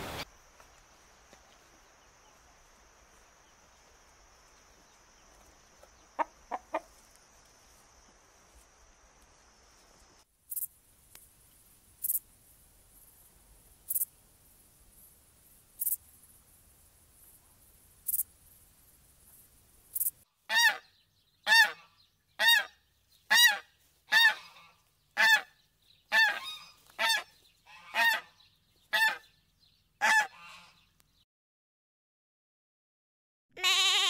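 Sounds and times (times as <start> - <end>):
geese honking: 21.5 - 22.7, 23.3 - 25.5, 26.1 - 29.3, 30.0 - 30.8.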